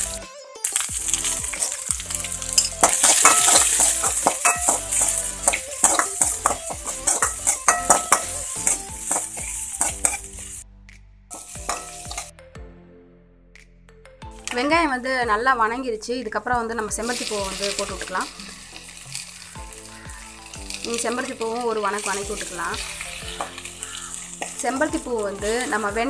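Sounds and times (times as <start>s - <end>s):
vegetables sizzling in hot oil: 0.0s - 10.6s, 11.3s - 12.3s, 16.9s - 26.0s
spatula scraping a pan: 1.1s - 10.5s, 11.4s - 12.3s.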